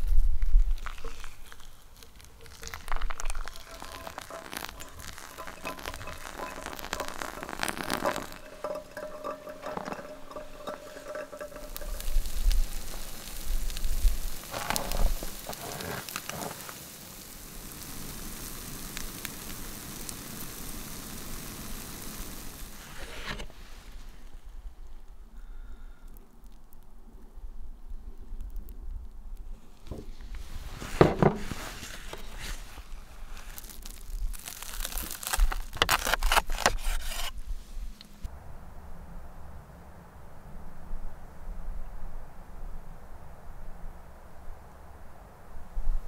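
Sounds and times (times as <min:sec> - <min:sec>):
food sizzling in a frying pan: 0:01.0 - 0:23.2, 0:33.4 - 0:35.8.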